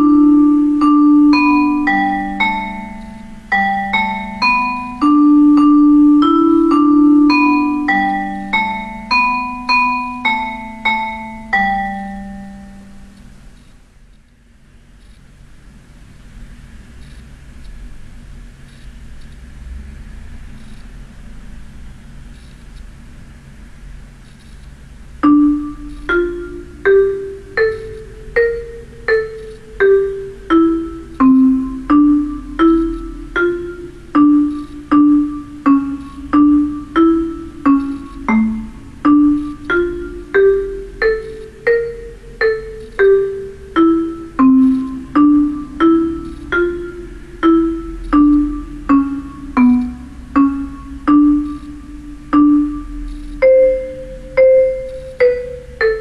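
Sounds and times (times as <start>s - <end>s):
mallet percussion melody: 0.0s - 13.2s, 25.2s - 56.0s.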